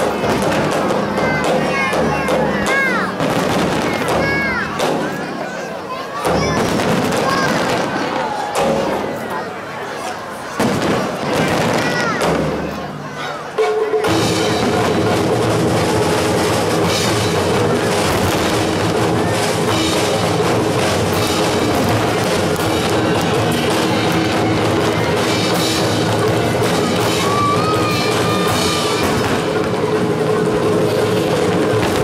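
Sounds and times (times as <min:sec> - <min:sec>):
firework bangs: 0:03.2 - 0:05.3, 0:06.3 - 0:09.2, 0:10.6 - 0:12.8, 0:14.5 - 0:32.0.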